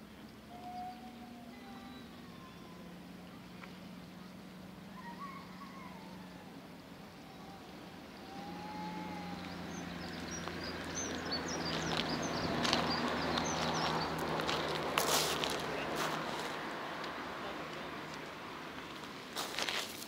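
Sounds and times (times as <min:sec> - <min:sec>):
low outdoor hum: 0:00.0 - 0:20.0
distant child crying: 0:00.5 - 0:03.0, 0:04.9 - 0:06.6, 0:07.2 - 0:09.8.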